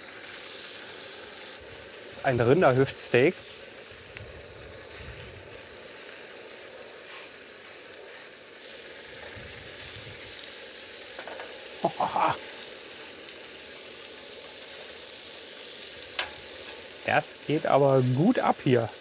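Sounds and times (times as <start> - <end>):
steak sizzling on griddle: 0.0 - 19.0
metal tongs turning meat: 11.2 - 11.6, 15.9 - 17.0.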